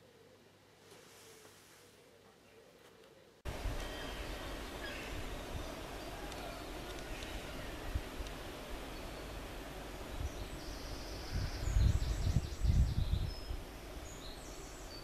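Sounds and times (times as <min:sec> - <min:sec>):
wind buffeting microphone: 0:10.0 - 0:14.5.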